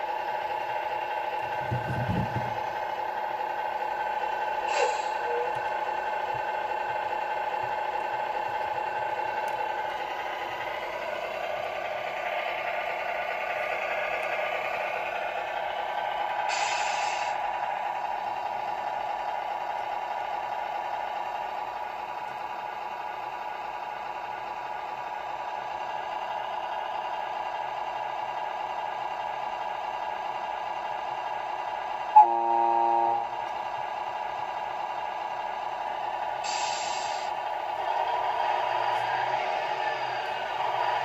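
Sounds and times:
simulated diesel engine idle: 0.0 - 41.0
truck horn blast: 32.2 - 33.4.

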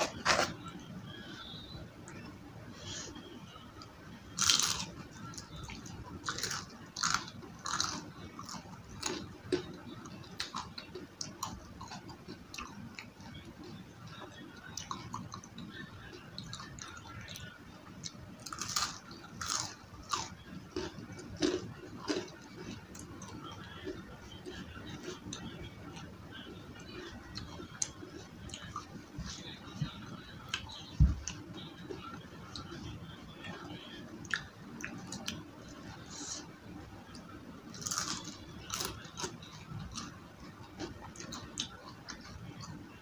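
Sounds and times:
chewing: 3.8 - 26.1, 37.7 - 42.7
crunching bites of onion rings: 4.4 - 5.0, 6.2 - 9.7, 18.4 - 22.4, 37.8 - 39.3.

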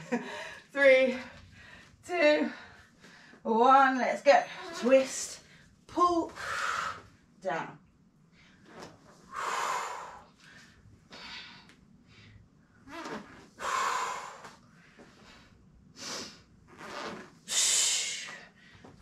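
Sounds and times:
woman breathing hard: 9.3 - 12.5, 13.6 - 16.4.

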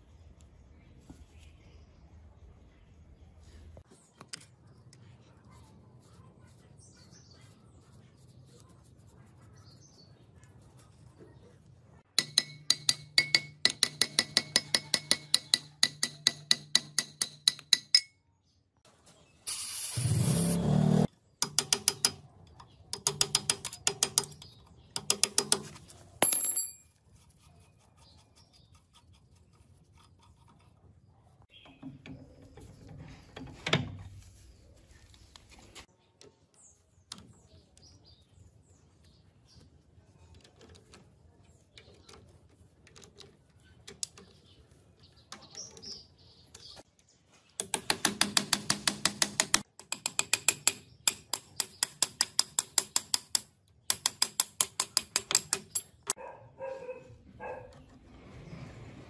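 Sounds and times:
hammer tapping on metal: 12.2 - 18.2, 21.4 - 22.2, 47.6 - 56.2
tools clicking: 47.6 - 56.2.

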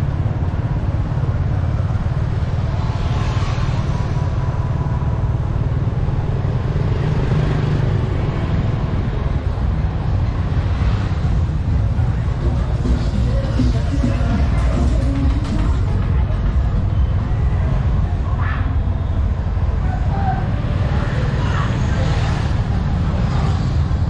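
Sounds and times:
wind engine and road rumble: 0.0 - 24.0.

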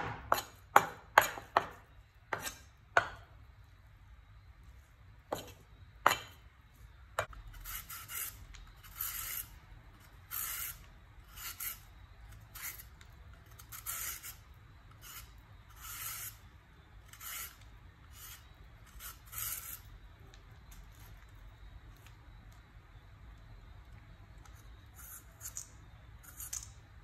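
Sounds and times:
peeler scraping a carrot: 7.2 - 19.9, 24.4 - 26.8.

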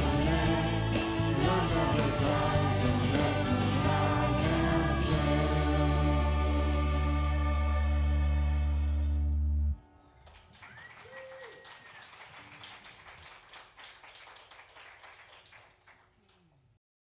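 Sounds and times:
audience clapping: 0.0 - 5.3, 10.2 - 16.8
brief cheer: 10.2 - 12.7.

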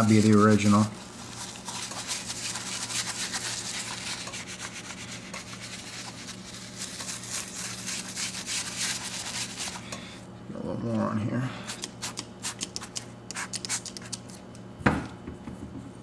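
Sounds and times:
brush scrubbing leather boot: 0.0 - 9.8.

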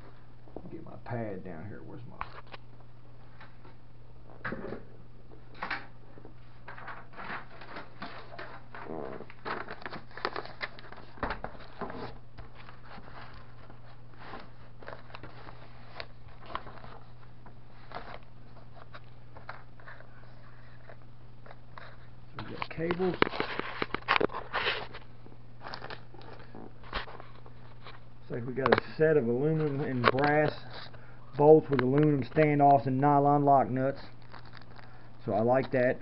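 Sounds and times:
steady low hum: 0.0 - 36.0
plastic bags crinkling: 7.5 - 20.8, 33.9 - 35.2.

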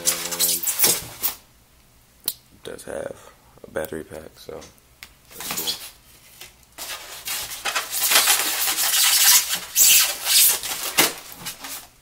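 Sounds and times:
styrofoam rubbing against plastic: 0.0 - 1.4, 6.8 - 11.9.

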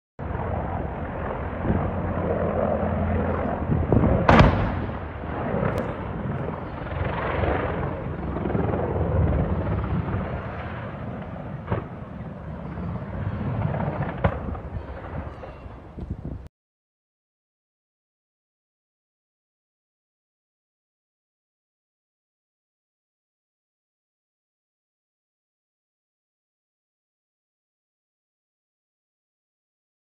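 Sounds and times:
helicopter flying overhead: 0.2 - 16.5
loud bang: 4.2 - 6.0.

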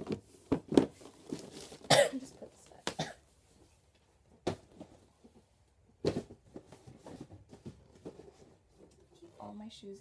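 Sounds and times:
rustling: 0.0 - 2.8, 3.4 - 9.5
knocks of shoes and shoebox: 6.0 - 8.2.

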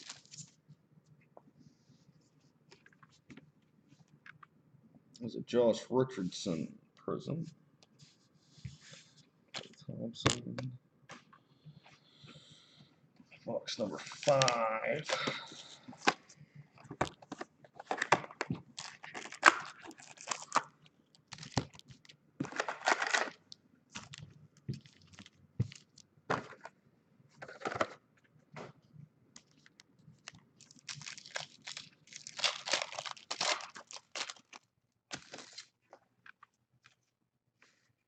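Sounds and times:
packaging tearing and crinkling: 17.8 - 23.4, 30.3 - 35.8.

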